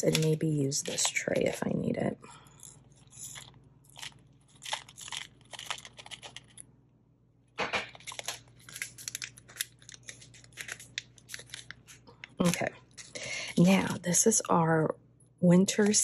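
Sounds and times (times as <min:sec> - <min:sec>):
foil pouch crinkling: 0:00.0 - 0:01.9, 0:02.5 - 0:06.6, 0:07.9 - 0:14.0
plastic sequins pattering: 0:04.0 - 0:06.6.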